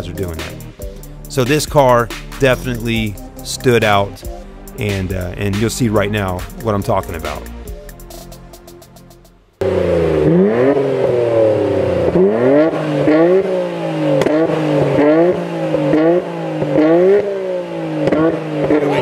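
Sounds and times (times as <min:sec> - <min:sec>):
car engine revving: 0:09.6 - 0:19.0.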